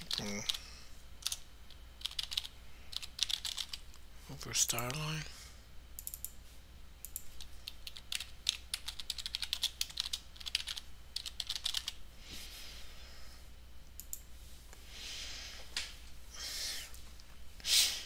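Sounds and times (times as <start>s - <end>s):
typing on keyboard: 1.2s - 1.4s, 2.0s - 3.8s, 7.1s - 12.0s.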